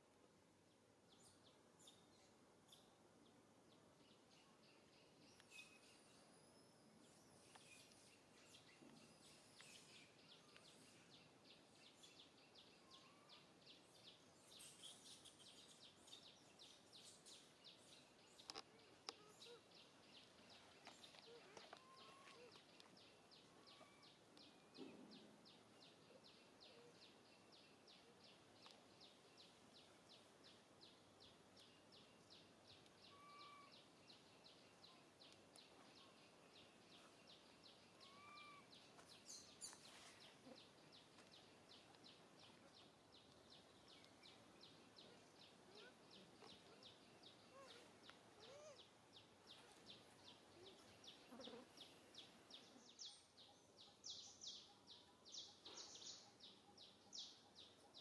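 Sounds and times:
faint clicks: 18.3s - 24.5s, 28.6s - 28.9s, 35.2s - 36.1s.

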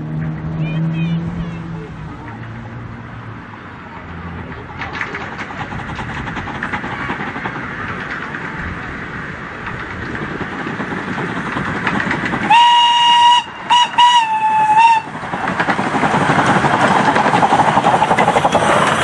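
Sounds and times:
train running noise: 0.0s - 19.0s
steam locomotive whistle: 12.5s - 15.2s.

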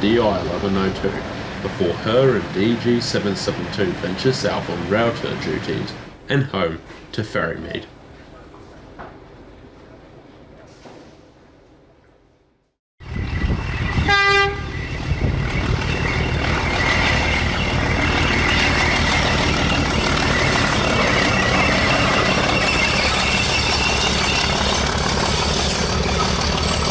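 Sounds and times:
locomotive diesel engine running: 13.0s - 26.9s
locomotive horn toot: 13.9s - 15.0s.

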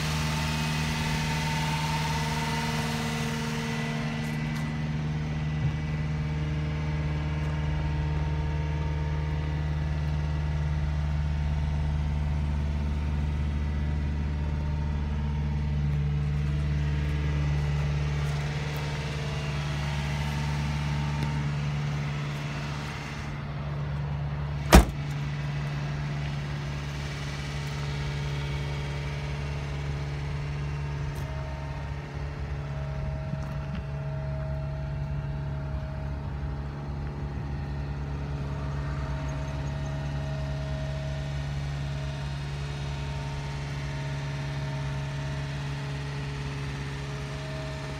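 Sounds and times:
truck engine idling: 0.0s - 47.9s
truck door shutting: 24.6s - 25.2s.

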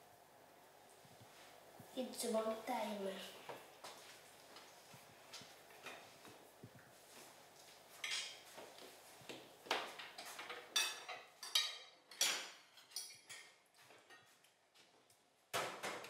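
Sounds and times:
spoons clinking on plates: 7.9s - 8.6s, 9.8s - 14.3s.

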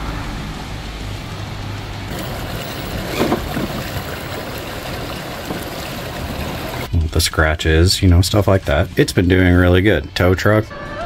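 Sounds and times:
creek water rushing: 2.1s - 6.9s
water splash: 2.1s - 6.9s.

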